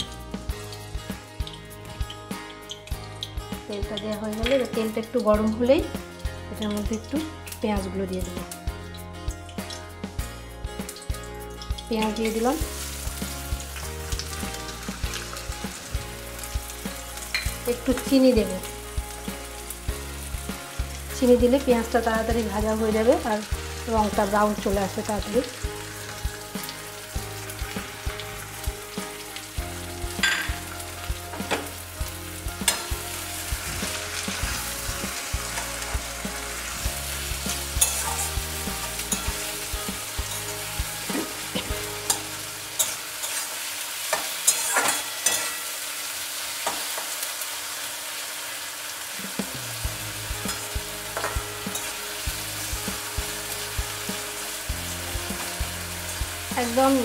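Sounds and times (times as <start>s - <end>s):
onions sizzling in hot oil: 0.0s - 57.0s
metal spatula scraping pan: 37.5s - 39.4s, 40.3s - 45.8s.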